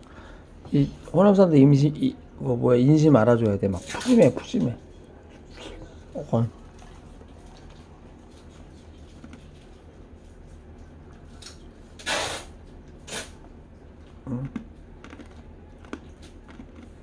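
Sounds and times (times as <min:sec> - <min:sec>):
low steady hum: 0:00.0 - 0:17.0
scraping or slurping sounds: 0:12.0 - 0:13.4.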